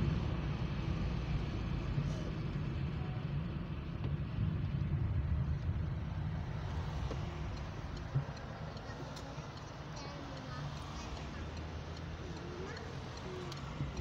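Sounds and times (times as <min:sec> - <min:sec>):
car engine and road noise: 0:00.0 - 0:14.0.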